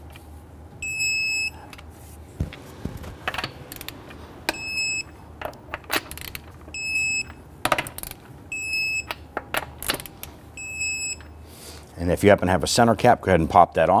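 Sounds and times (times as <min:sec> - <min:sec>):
torque wrench beeping: 0:00.8 - 0:01.6, 0:03.7 - 0:05.2, 0:06.1 - 0:07.4, 0:08.0 - 0:09.2, 0:10.6 - 0:11.4.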